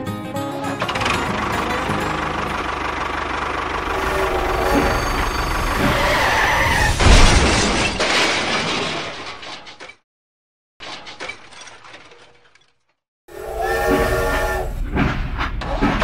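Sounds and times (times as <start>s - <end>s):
toy tractor engine sound: 0.7s - 6.0s
toy crash with clattering: 6.9s - 10.0s, 10.8s - 13.0s.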